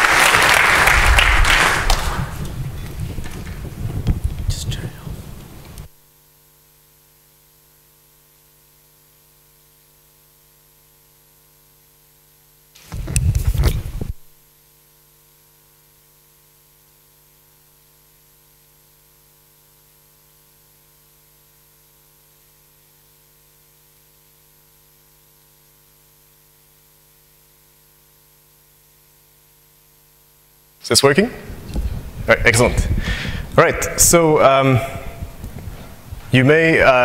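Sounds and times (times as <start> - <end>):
faint electrical hum: 0.0 - 37.0
clip-on microphone being handled: 12.8 - 14.2.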